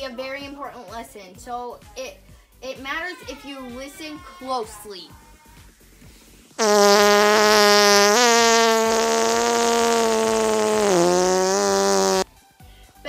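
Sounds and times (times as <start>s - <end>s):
buzzing fart noise: 6.6s - 12.2s.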